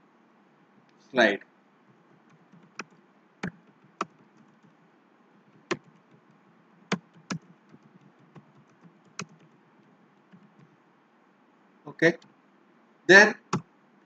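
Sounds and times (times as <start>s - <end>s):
typing on computer keyboard: 1.9s - 4.7s, 5.6s - 10.7s.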